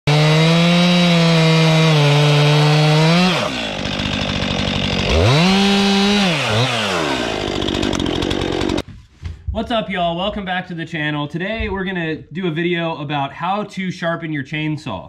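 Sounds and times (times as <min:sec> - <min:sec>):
chainsaw cutting log: 0:00.1 - 0:08.8.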